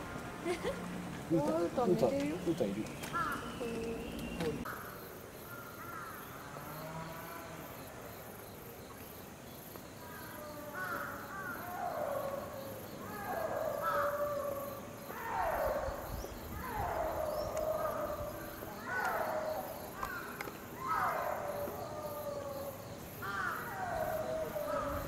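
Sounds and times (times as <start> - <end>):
crow cawing: 3.1 - 3.7, 10.8 - 11.7, 17.9 - 21.4, 23.2 - 25.0.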